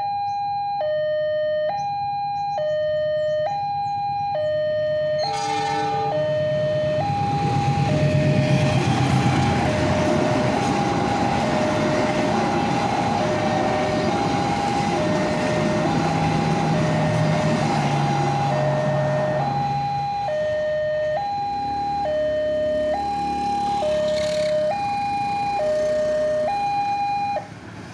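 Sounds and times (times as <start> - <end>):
level-crossing alarm ding-dong: 0.0 - 27.4
low hum: 5.2 - 9.7
train rumbling on rails: 5.2 - 26.6.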